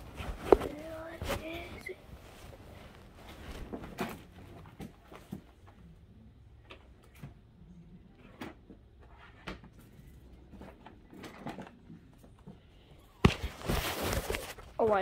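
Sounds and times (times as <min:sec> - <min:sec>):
rustling: 0:00.0 - 0:05.5, 0:13.2 - 0:15.0.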